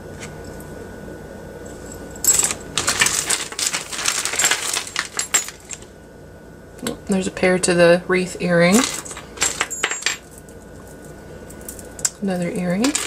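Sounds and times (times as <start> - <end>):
metal jewelry clinking: 1.6 - 5.9, 8.7 - 13.0
plastic bag crinkling: 2.7 - 5.8.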